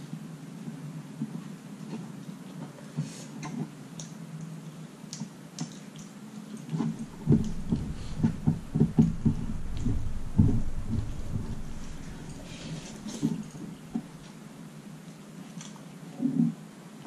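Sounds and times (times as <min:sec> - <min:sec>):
dull thumps: 0:06.9 - 0:14.2
low rumble: 0:06.9 - 0:14.3.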